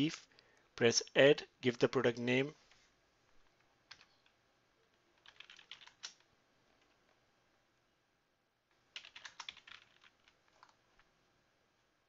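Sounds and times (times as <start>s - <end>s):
keyboard typing: 3.9s - 4.4s, 5.2s - 7.0s, 8.9s - 10.8s.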